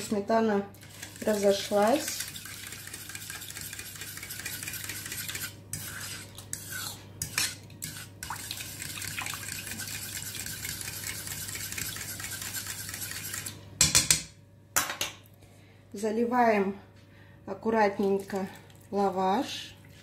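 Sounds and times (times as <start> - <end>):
fork whisking in metal bowl: 0.8 - 13.6.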